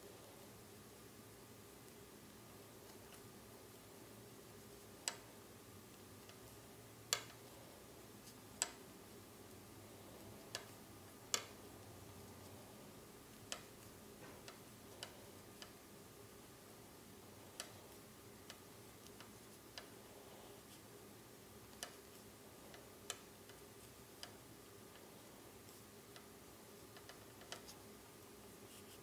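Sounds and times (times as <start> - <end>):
knitting needles clicking: 7.1 - 7.5, 10.4 - 11.6, 13.4 - 15.8, 25.6 - 27.8.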